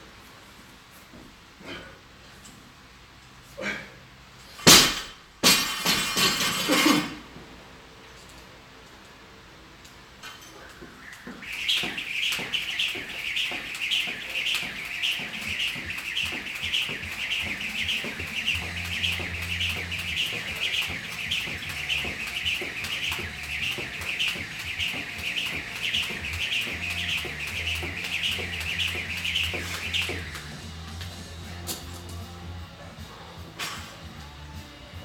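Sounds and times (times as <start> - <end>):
jump rope swishing: 10.7 - 31.4.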